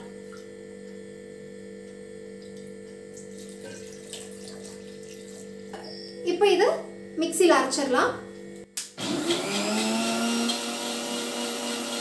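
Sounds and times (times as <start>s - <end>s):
low electrical hum: 0.0s - 9.0s.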